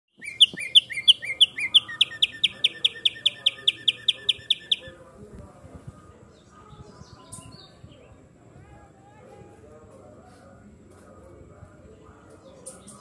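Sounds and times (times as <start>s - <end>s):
songbird whistling song: 0.1s - 5.0s.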